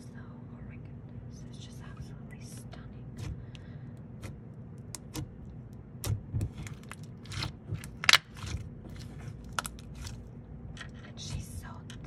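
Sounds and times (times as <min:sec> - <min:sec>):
slime squishing with sticky pops: 0:03.1 - 0:11.6.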